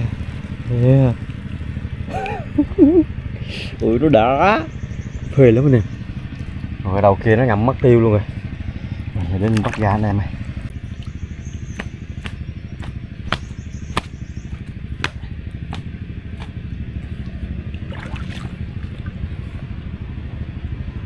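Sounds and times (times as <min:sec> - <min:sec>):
water drips: 0:00.0 - 0:03.0, 0:08.8 - 0:19.2
boat engine rumbling: 0:00.0 - 0:21.0.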